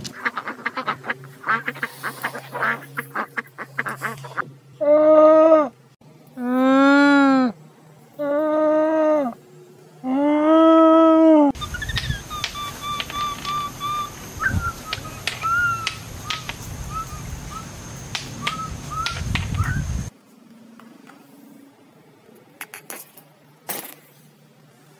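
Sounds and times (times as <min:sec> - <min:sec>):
steady high whine: 0:11.5 - 0:22.6
short high chirping calls: 0:11.6 - 0:17.8, 0:18.4 - 0:20.0
sharp clicks: 0:11.8 - 0:16.7, 0:18.1 - 0:19.7.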